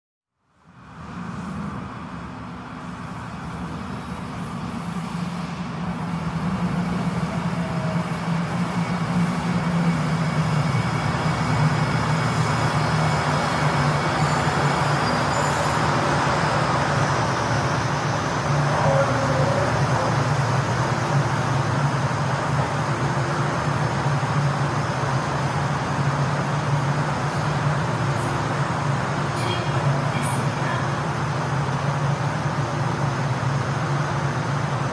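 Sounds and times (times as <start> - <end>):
metro train running: 0.4 - 34.9.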